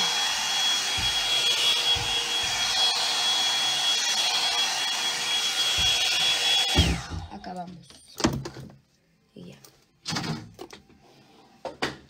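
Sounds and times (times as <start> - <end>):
hot-air dryer brush running: 0.0 - 7.4.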